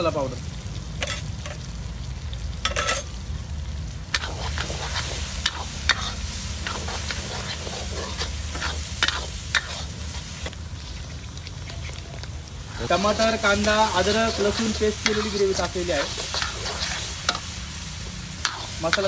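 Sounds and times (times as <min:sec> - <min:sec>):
frying oil hissing: 0:00.0 - 0:19.0
spatula scraping iron pan: 0:02.7 - 0:03.1, 0:04.2 - 0:09.9, 0:14.2 - 0:17.5, 0:18.4 - 0:19.0.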